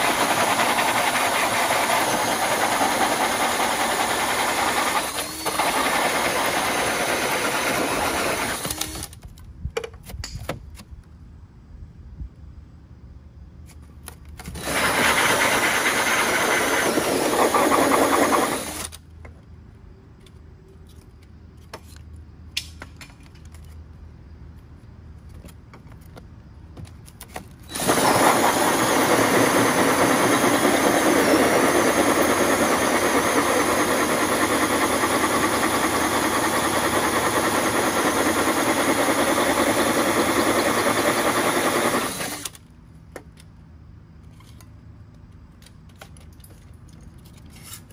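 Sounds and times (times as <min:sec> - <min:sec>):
hole saw drill cutting wall: 0:00.0 - 0:09.2, 0:14.4 - 0:19.0, 0:27.7 - 0:42.6.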